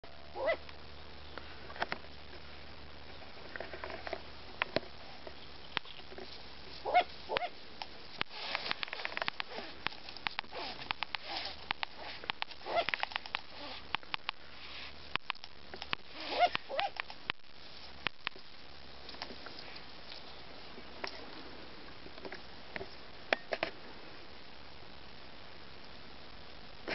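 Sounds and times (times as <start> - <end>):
owl chicks short cries: 0.3 - 0.6, 6.8 - 7.6
owl chicks hissing: 6.7 - 15.2, 16.0 - 17.0
owl chicks bill snapping: 6.8 - 14.4.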